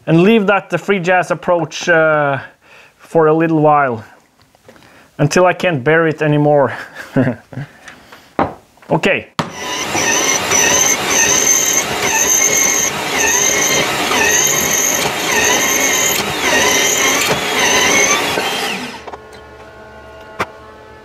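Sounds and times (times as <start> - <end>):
drill press motor running: 9.4 - 19.2
drill bit squealing through metal: 9.5 - 19.1.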